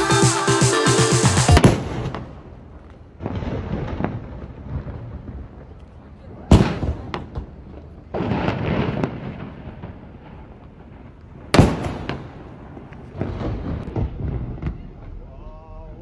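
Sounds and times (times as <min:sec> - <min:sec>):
cannons firing with rolling echo: 0:06.5 - 0:15.1.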